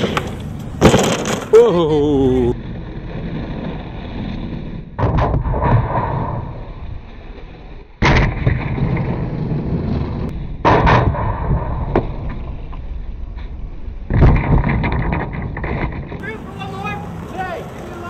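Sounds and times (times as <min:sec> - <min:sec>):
skateboard landing slap: 0:00.0 - 0:01.6, 0:04.9 - 0:06.9, 0:08.0 - 0:12.8, 0:14.1 - 0:16.2
skateboard wheels rumbling on pavement: 0:00.0 - 0:01.6, 0:02.5 - 0:10.6, 0:11.3 - 0:18.0
light skateboard clacks: 0:17.1 - 0:18.0.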